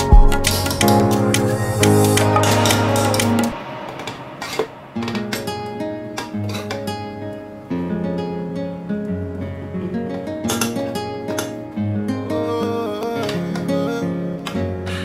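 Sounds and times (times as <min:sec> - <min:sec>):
strummed acoustic guitar: 0:00.0 - 0:15.0.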